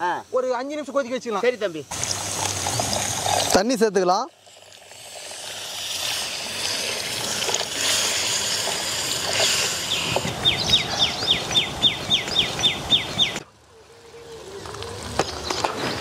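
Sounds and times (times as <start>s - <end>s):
water pouring into frying pan: 1.9s - 10.0s
bird chirping: 9.8s - 14.6s.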